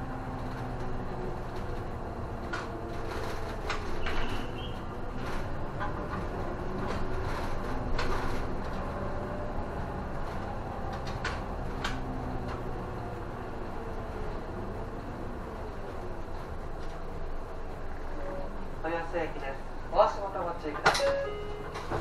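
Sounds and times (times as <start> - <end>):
bus engine and road drone: 0.0 - 22.0
sharp clicks of bus fittings: 0.4 - 8.9, 10.2 - 12.7, 20.8 - 22.0.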